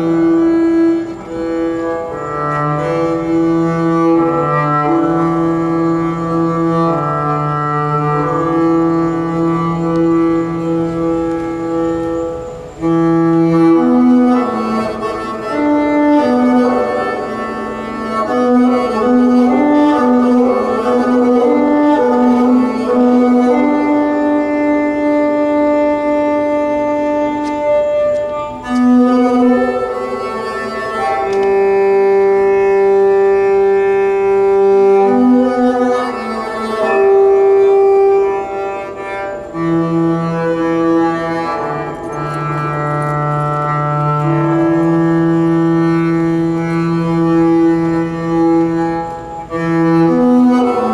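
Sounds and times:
bowed harp strings long notes: 0.0s - 50.9s.

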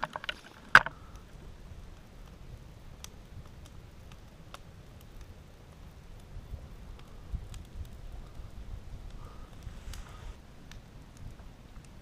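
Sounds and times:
campfire crackling: 0.0s - 12.0s
sharp pops from fire: 0.0s - 12.0s
low steady rumble: 0.9s - 11.4s.

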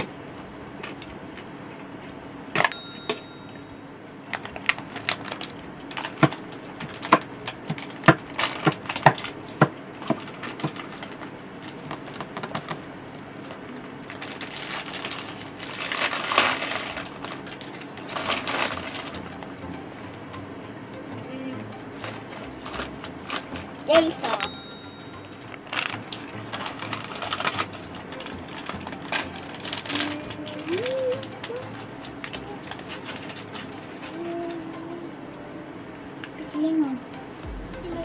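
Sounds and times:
plastic packaging clicks: 4.4s - 12.9s, 13.5s - 19.2s, 25.7s - 34.2s.

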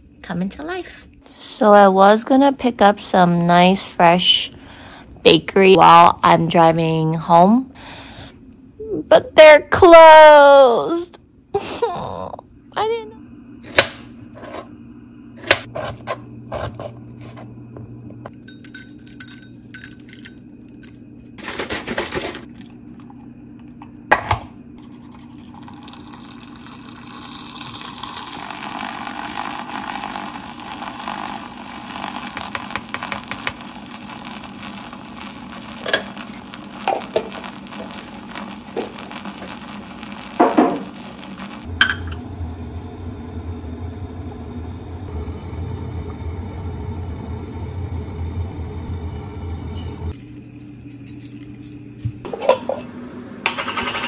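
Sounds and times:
low hum: 11.1s - 54.0s
spoon and glass clinks: 18.3s - 21.0s
electric milk frother whirring: 24.8s - 51.5s.

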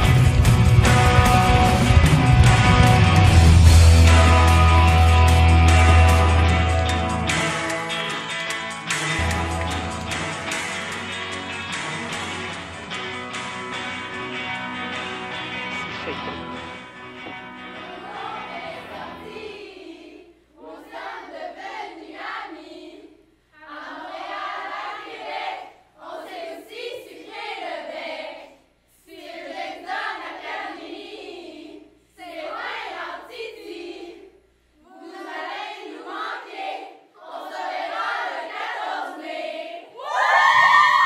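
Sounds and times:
girls singing in unison: 17.7s - 41.0s.

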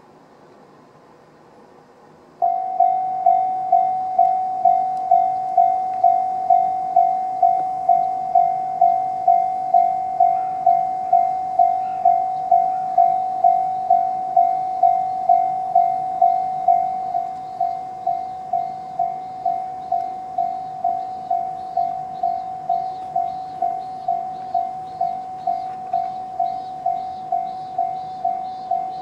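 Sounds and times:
level crossing warning bell: 2.4s - 29.0s.

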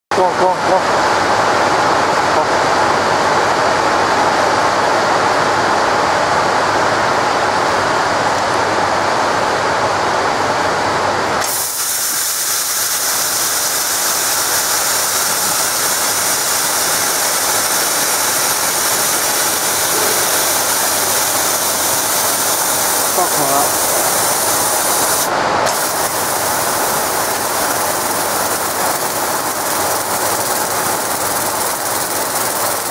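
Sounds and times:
loud gas jet hiss: 11.4s - 32.9s
rushing machine noise: 12.4s - 32.9s.

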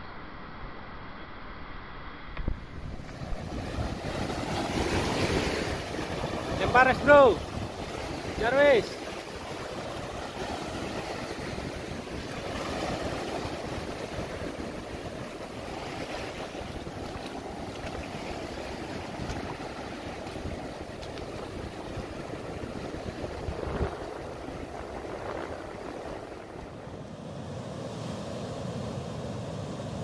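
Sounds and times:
ocean surf washing: 2.4s - 30.0s
wind buffeting microphone: 2.4s - 30.0s.

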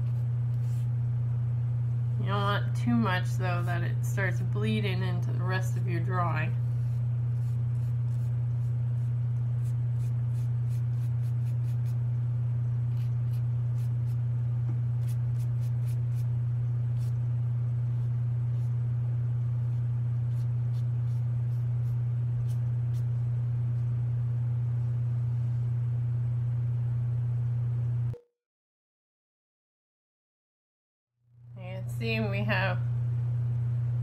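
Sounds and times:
steady low hum: 0.0s - 28.2s, 31.3s - 34.0s
brush ticking on paper: 6.7s - 12.0s, 19.6s - 23.2s.

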